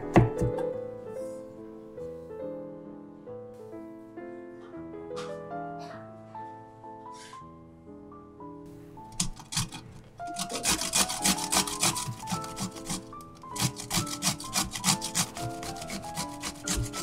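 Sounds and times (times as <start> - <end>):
soft background piano music: 0.0 - 17.0
cucumber rasping on metal grater: 9.1 - 17.0.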